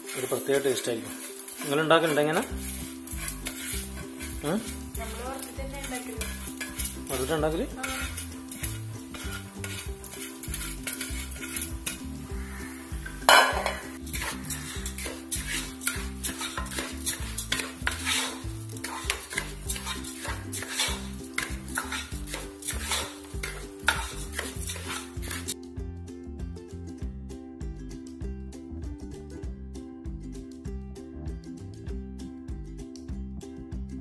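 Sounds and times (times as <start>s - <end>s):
light sizzle of frying: 0.0s - 25.6s
spatula scraping a pan: 0.0s - 25.6s.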